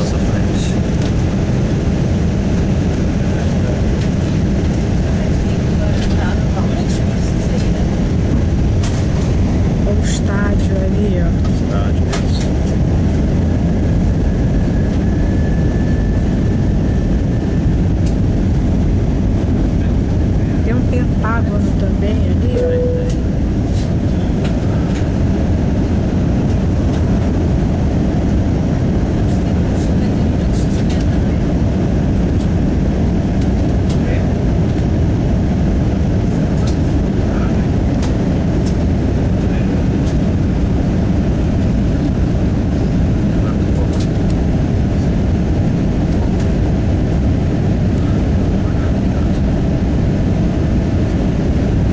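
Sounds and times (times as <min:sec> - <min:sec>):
jet engine cabin rumble: 0:00.0 - 0:51.9
faint high whine: 0:11.5 - 0:51.9.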